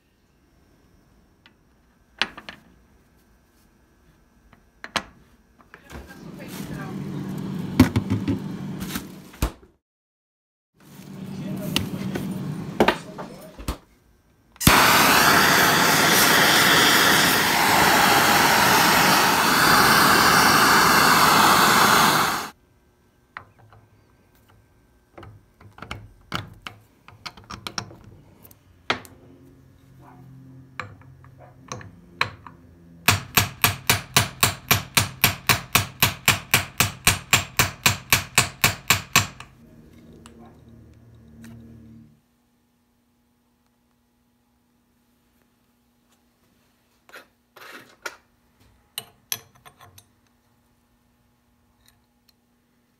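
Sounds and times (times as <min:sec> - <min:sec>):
loud steady rushing tool noise: 0:14.6 - 0:22.6.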